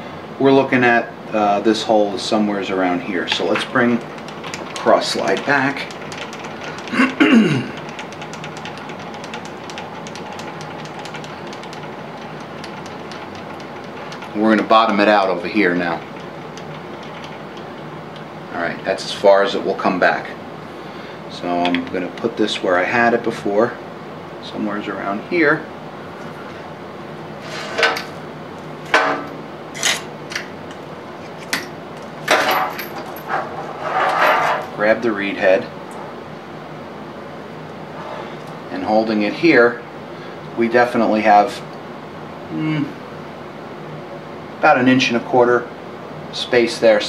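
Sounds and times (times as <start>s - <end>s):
lathe slide cranking clicks: 3.3s - 7.0s, 7.8s - 15.0s.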